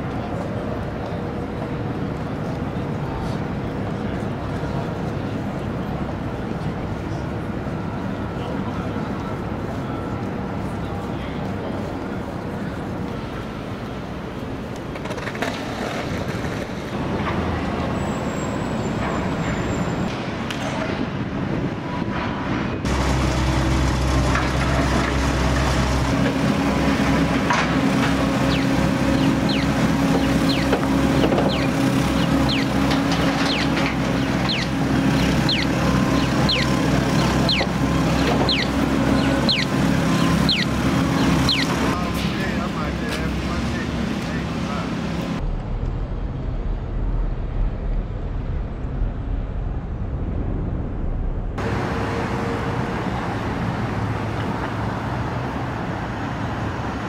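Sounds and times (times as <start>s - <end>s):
passing vehicles rumbling: 0.0s - 57.0s
high falling chirp: 28.5s - 30.7s, 31.5s - 32.8s, 33.4s - 41.8s.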